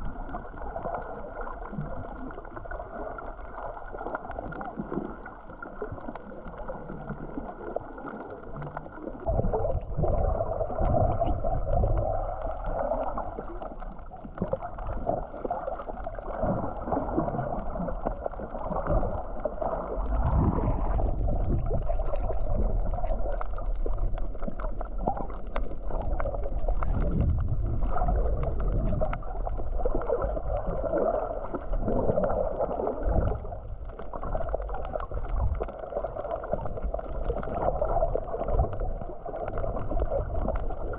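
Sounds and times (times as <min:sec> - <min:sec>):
muffled water sloshing and rumbling: 0:00.0 - 0:40.9.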